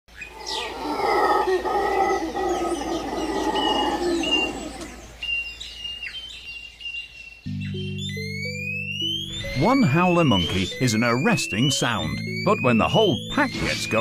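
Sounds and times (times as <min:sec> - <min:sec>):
howler monkeys howling: 0:00.1 - 0:05.4
birds chirping and whistling: 0:00.1 - 0:14.0.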